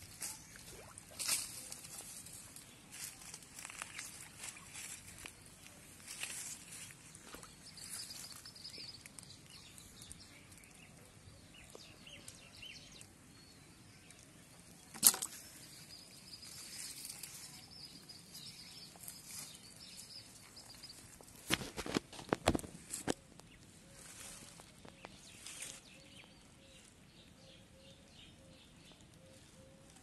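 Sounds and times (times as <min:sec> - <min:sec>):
faint rustling of fish unhooked: 0:00.1 - 0:10.8.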